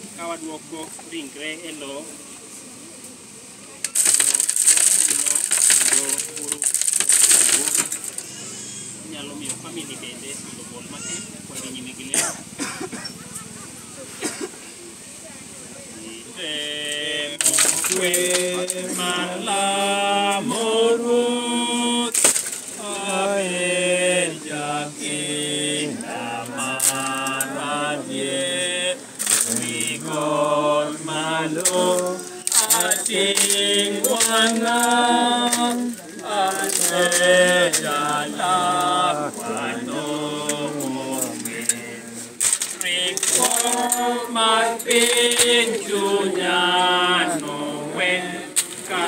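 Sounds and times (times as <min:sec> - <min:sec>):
sharp clatters: 0:03.8 - 0:08.8, 0:17.4 - 0:19.2, 0:22.1 - 0:23.2, 0:28.4 - 0:30.4, 0:31.6 - 0:46.0
group singing a hymn unaccompanied: 0:15.9 - 0:49.0.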